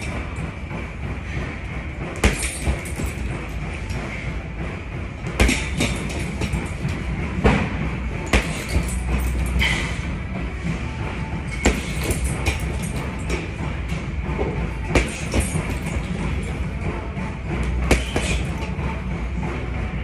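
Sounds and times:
punches on heavy bag: 2.2s - 3.0s, 5.3s - 6.6s, 7.4s - 9.0s, 11.5s - 13.0s, 14.9s - 15.8s, 17.8s - 18.6s.

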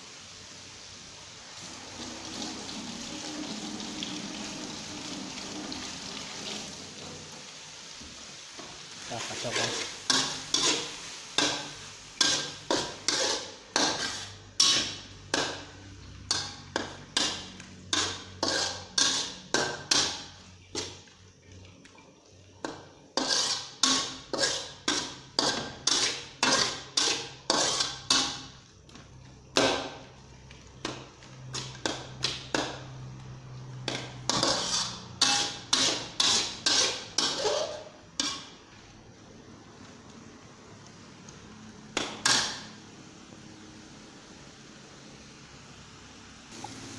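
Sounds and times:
metal spatula scraping a wok: 9.1s - 21.1s, 22.6s - 28.6s, 33.5s - 38.7s, 42.0s - 42.8s.

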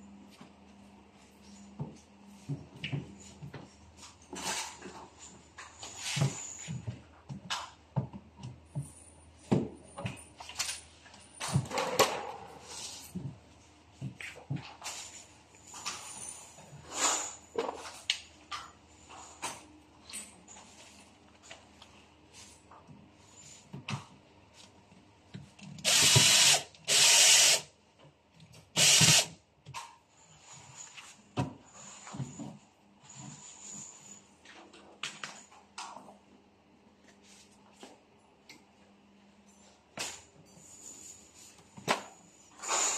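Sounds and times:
cordless drill driving screw: 25.8s - 27.6s, 28.8s - 29.3s.

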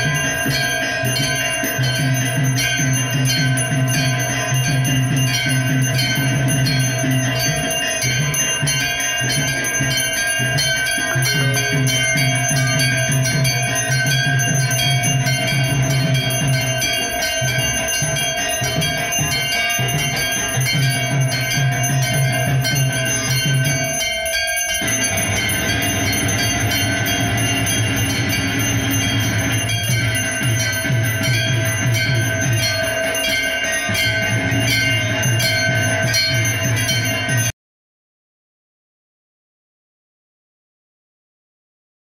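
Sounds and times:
bells ringing rapidly: 0.0s - 37.6s
deep steady drone: 24.7s - 36.6s.

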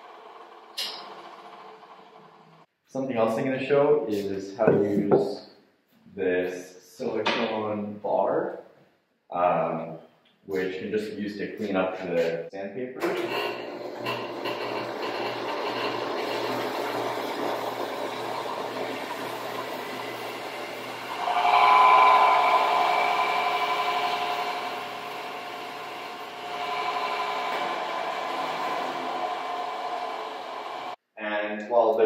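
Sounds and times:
belt and disc sander running: 0.0s - 2.6s, 13.2s - 21.2s, 22.4s - 31.0s.

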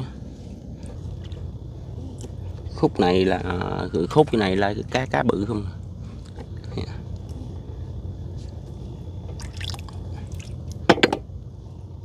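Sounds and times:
steady low hum: 0.0s - 12.0s
water dripping and splashing: 9.3s - 10.7s.

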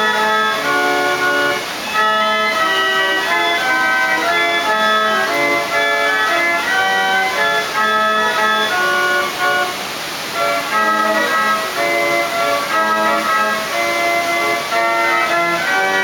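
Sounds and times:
pipe organ playing a tune: 0.0s - 16.0s
steady water hiss: 0.0s - 16.0s.

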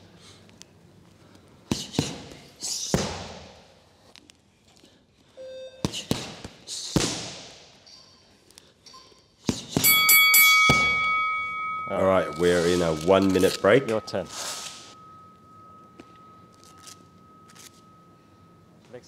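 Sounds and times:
punches slapping pads: 1.7s - 3.5s, 5.8s - 7.5s, 9.4s - 9.9s
round timer tone: 9.9s - 18.8s.

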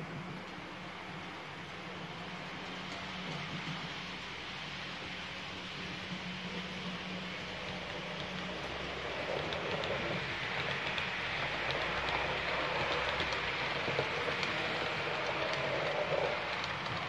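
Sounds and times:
light clicks of track: 0.4s - 0.7s, 2.0s - 4.3s, 7.3s - 17.0s
model train wheels rattling on rails: 2.0s - 17.0s.

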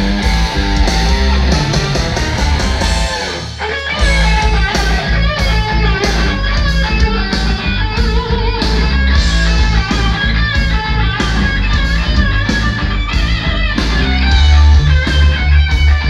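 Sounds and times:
loud rock music with electric guitar: 0.0s - 16.0s.

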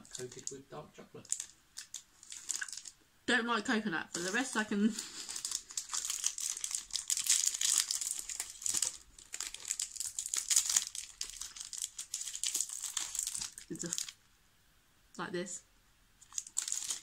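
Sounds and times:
plastic wrapper crinkling: 0.0s - 0.6s, 1.2s - 3.0s, 4.1s - 14.2s, 16.2s - 17.0s.

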